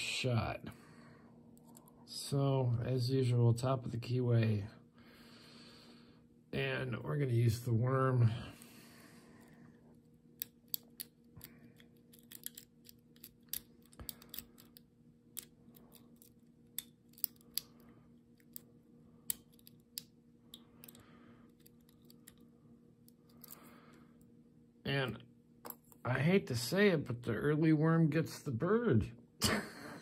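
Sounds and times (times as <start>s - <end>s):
lock pick clicking and scraping: 11.8s - 14.8s, 15.4s - 17.8s, 19.3s - 22.4s.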